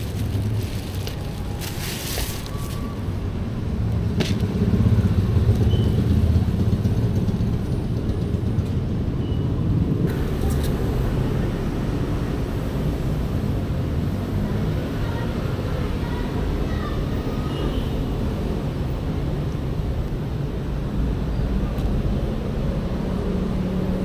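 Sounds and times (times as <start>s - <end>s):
plastic bag rustling: 0.0s - 3.0s.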